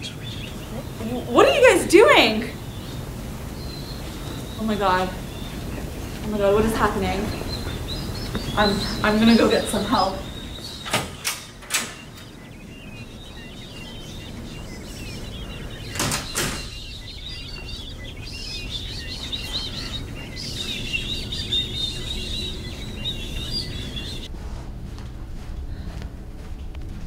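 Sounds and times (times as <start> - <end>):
twittering bird-like chirps: 0.0 - 24.3
sharp knocks: 15.9 - 16.8
low steady rumble: 16.7 - 27.0.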